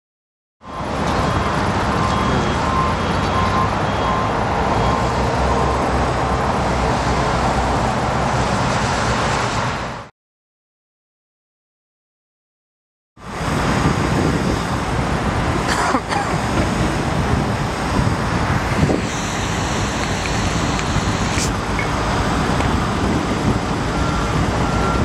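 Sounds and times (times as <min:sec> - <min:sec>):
vehicle reversing beeper: 0:00.6 - 0:05.8, 0:19.0 - 0:22.0, 0:23.4 - 0:25.0
trucks and traffic rumble: 0:00.6 - 0:10.1, 0:13.2 - 0:25.0.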